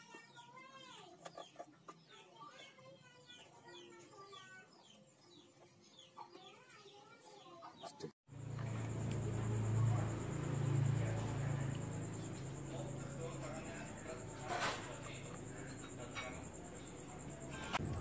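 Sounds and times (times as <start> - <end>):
birds chirping: 0.0 - 17.8
low hum with high tone: 8.3 - 18.0.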